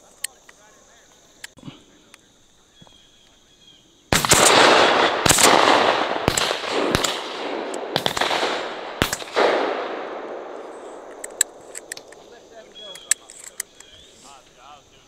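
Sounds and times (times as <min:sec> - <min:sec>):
shotgun blasts echoing: 0:04.1 - 0:12.3.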